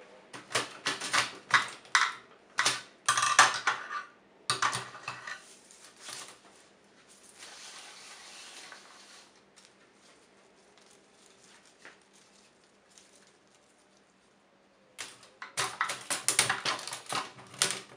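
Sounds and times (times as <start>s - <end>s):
typewriter clattering: 0.4s - 3.8s, 15.0s - 17.9s.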